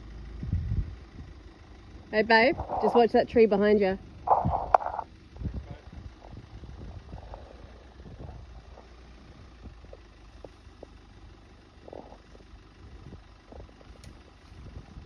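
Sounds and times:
engine idling: 0.0 - 15.0.

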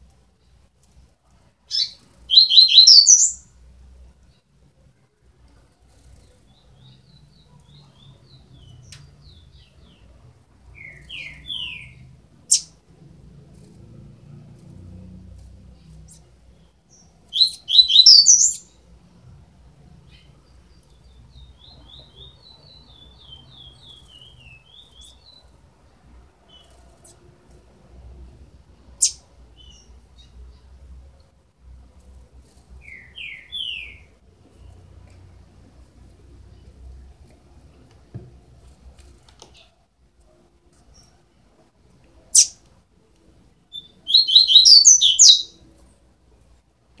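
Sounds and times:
bird chicks chirping: 17.0 - 18.7, 43.7 - 45.6.

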